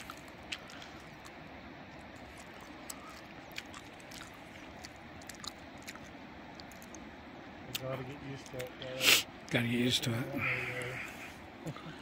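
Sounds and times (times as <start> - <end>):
loud chewing: 0.0 - 7.1.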